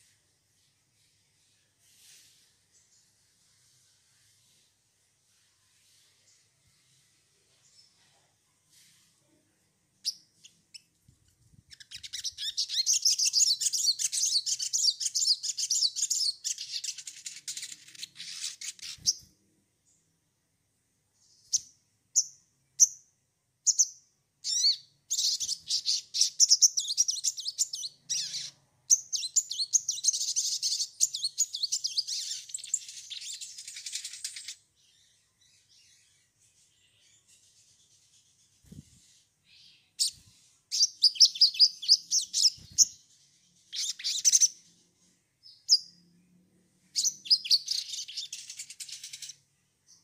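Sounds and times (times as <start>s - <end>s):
songbird twittering: 11.7s - 19.3s, 23.7s - 35.1s, 39.5s - 43.0s, 43.7s - 44.6s, 47.0s - 50.0s.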